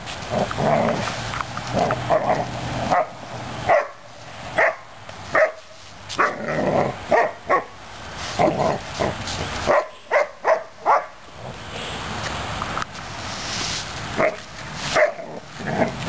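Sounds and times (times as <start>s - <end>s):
puppy barking: 2.1s - 6.4s, 7.1s - 7.7s, 9.7s - 11.2s, 14.2s - 16.0s.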